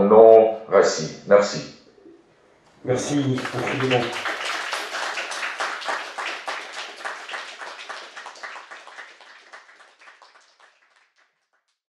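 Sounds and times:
audience applauding: 2.9s - 11.8s.

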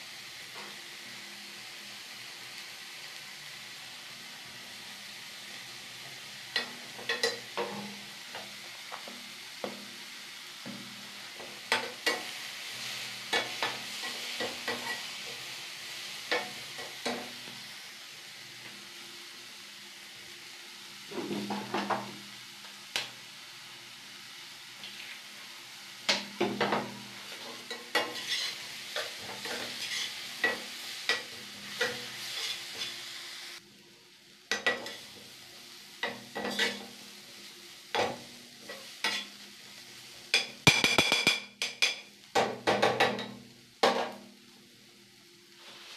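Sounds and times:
vegetables sizzling in a pan: 0.0s - 45.9s
spatula clicking and scraping pan: 6.6s - 9.8s, 11.4s - 12.5s, 13.3s - 15.4s, 16.3s - 17.3s, 26.1s - 33.0s, 34.5s - 35.1s, 36.0s - 36.9s, 37.9s - 39.4s, 40.3s - 44.2s.

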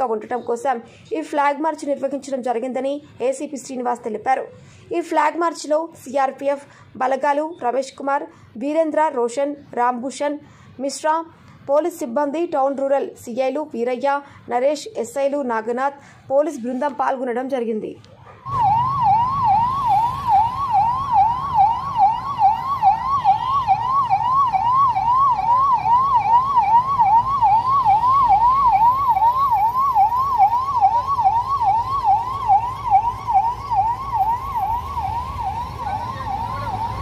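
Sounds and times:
low rumble of vehicle engines: 18.0s - 37.0s
police siren yelping: 18.1s - 37.0s.

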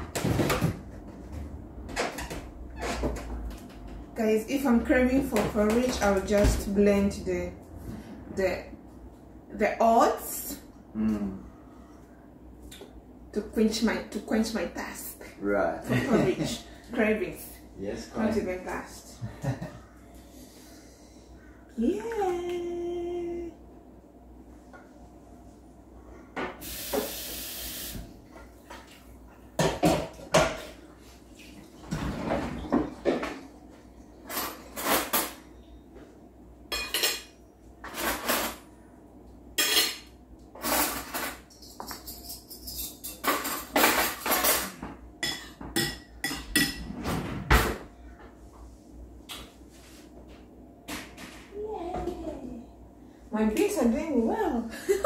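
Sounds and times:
short hiss: 26.6s - 28.0s
dishes and cutlery clinking: 36.7s - 38.7s, 39.6s - 47.0s.

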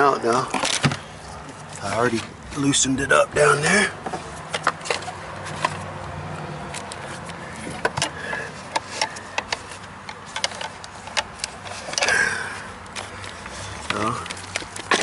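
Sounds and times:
rough scraping rustle: 6.6s - 15.0s
clicks and knocks of gear handled: 6.7s - 15.0s.

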